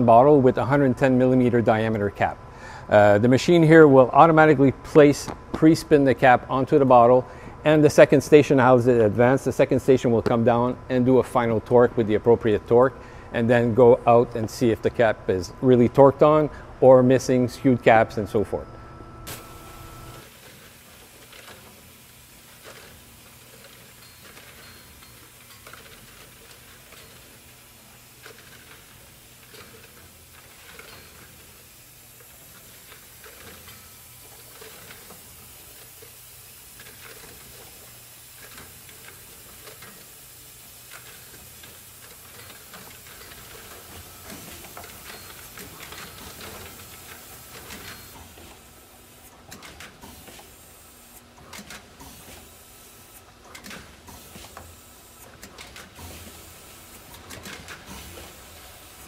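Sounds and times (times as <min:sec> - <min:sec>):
machine humming: 0:09.0 - 0:20.3.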